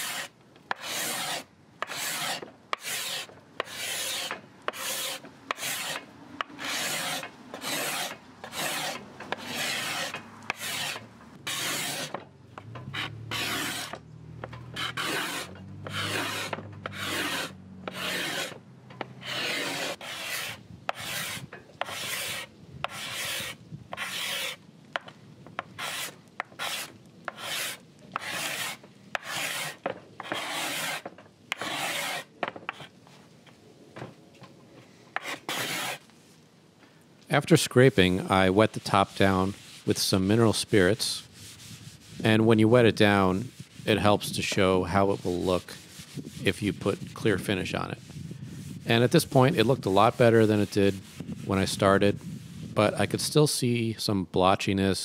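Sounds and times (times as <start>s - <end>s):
card scraper rasping on wood: 0.0s - 12.2s, 12.8s - 14.0s, 14.7s - 32.9s, 35.2s - 36.0s.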